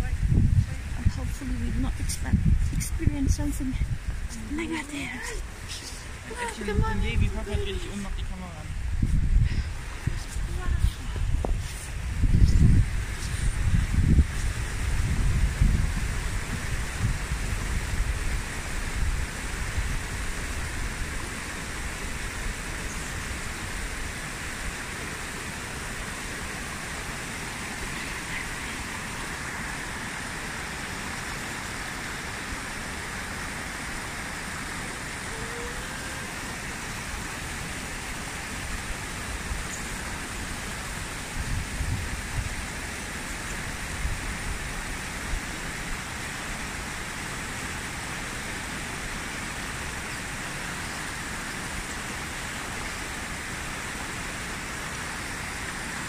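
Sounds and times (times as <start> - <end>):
wind buffeting microphone: 0.0 - 24.8, 38.6 - 42.9
river rushing over rocks: 12.8 - 56.0.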